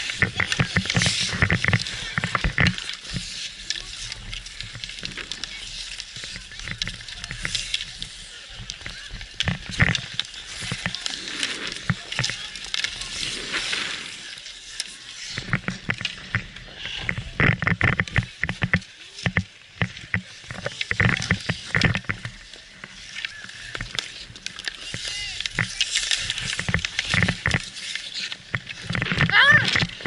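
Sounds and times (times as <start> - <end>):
faint voices: 0.0 - 30.0
hockey sticks clicking and knocking: 0.0 - 30.0
ice skates scraping ice: 0.0 - 30.0.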